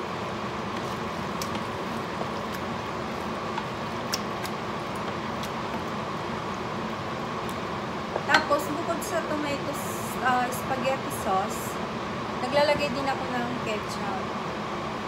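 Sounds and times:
steady background hum: 0.0 - 15.0
spoon stirring thick sauce: 0.6 - 6.4.

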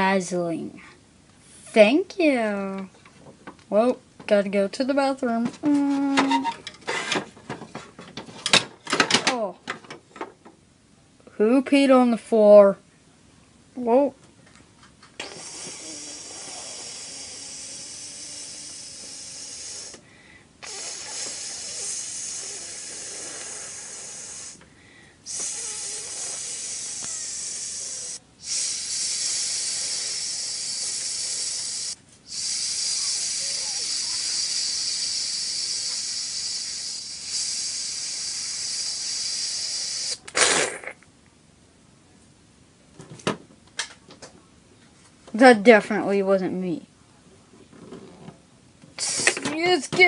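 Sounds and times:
person making hissing sound: 5.7 - 6.6, 15.2 - 24.6, 25.2 - 41.0, 49.0 - 49.6.

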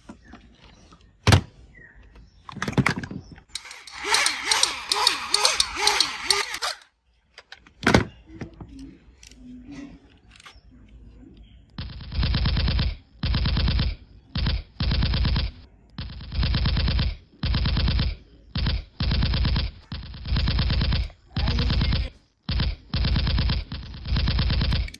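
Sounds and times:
toy gun machine-gun bursts: 3.5 - 6.9, 11.8 - 24.9.

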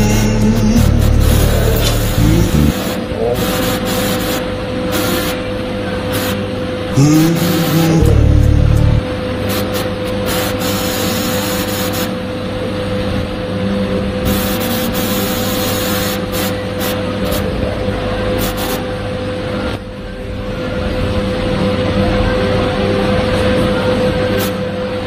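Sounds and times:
loud low hum: 0.0 - 4.9, 6.6 - 10.1, 12.2 - 25.0
welding arc hiss: 0.0 - 5.4, 9.5 - 12.1
welding machine hum: 0.0 - 5.5, 6.1 - 19.0.

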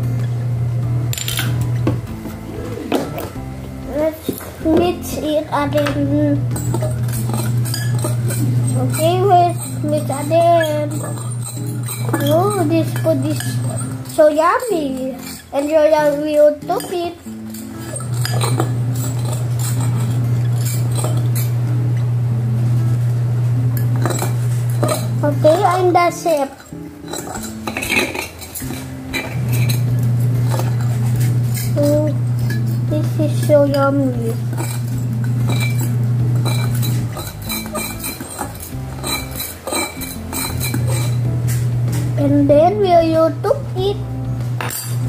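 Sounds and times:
loud low hum: 0.0 - 45.0
spoon clinking against bowl: 6.5 - 21.6, 23.8 - 33.8, 34.5 - 41.3, 44.6 - 45.0.

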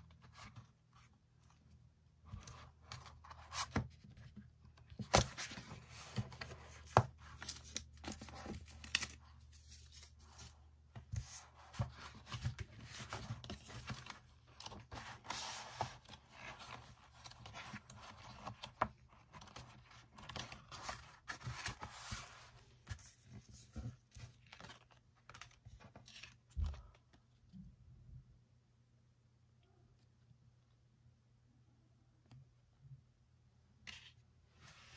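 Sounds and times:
paper and cardboard rustling: 2.3 - 26.8.

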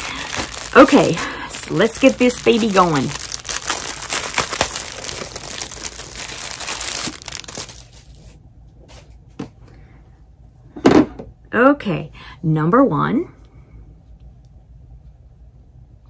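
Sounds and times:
wrapping rustling and crumpling: 0.0 - 8.4.

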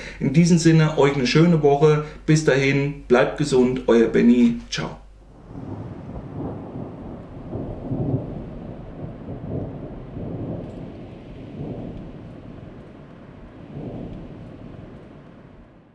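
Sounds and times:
rain hissing: 0.0 - 15.9
rolling thunder: 5.3 - 15.9.

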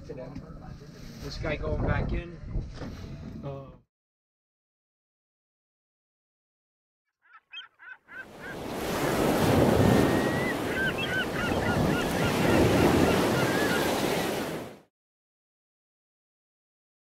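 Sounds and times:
bird calling: 7.1 - 14.6
ocean surf waves washing in: 8.3 - 14.9.

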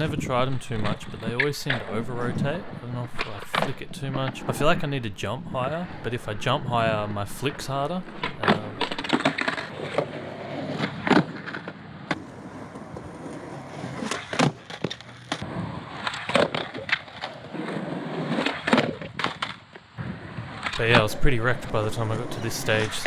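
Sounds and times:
skateboard wheels rolling: 0.0 - 23.0
skateboard clacks on concrete: 8.1 - 19.8.

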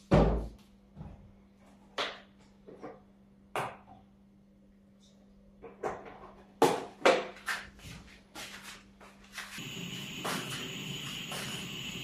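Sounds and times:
kitchen items clunking and knocking: 5.6 - 7.4
faint steady hum: 9.6 - 12.0.

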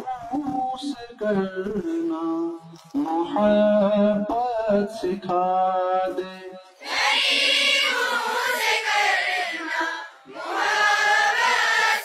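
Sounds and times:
children singing in unison: 6.8 - 12.0.

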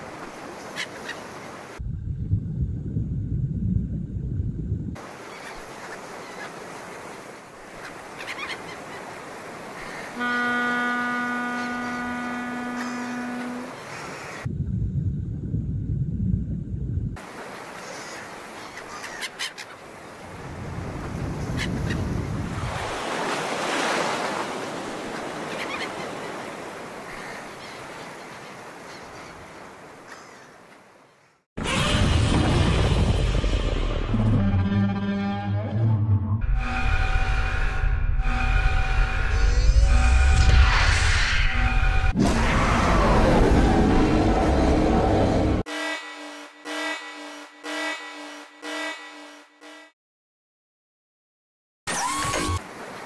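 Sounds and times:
sea ambience: 0.0 - 35.2, 36.4 - 50.0, 51.9 - 53.0
water surging: 5.0 - 14.5, 17.2 - 19.1
ship's horn blast: 10.1 - 14.0, 34.1 - 40.6, 44.0 - 50.0.

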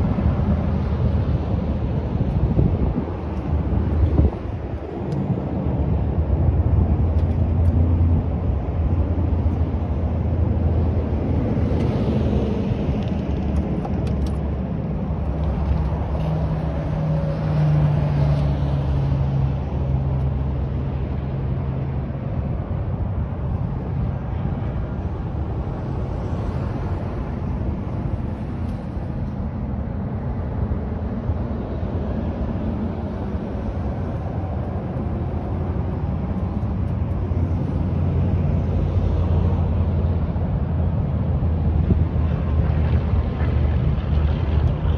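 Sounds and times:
wind buffeting microphone: 0.0 - 18.3
vehicle noise: 0.0 - 44.9.

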